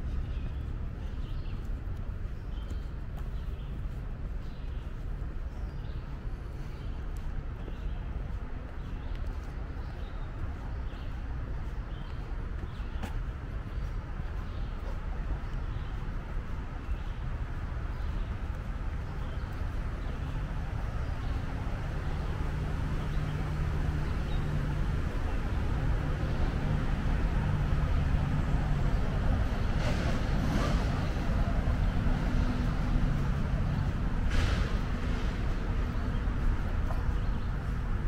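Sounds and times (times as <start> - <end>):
road traffic hum and tyre rumble: 0.0 - 38.0.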